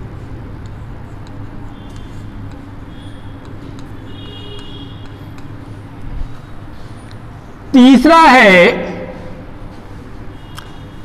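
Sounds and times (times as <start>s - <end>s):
chalk tapping and squeaking: 0.0s - 7.2s
steady background hum: 0.0s - 11.0s.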